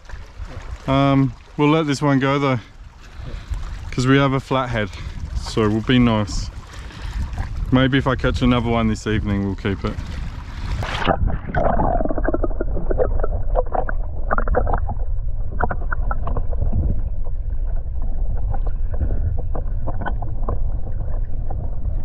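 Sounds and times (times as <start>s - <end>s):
muffled underwater rumbling: 0.0s - 22.0s
water sloshing at surface: 0.0s - 22.0s
bubbly clicks: 11.0s - 21.8s.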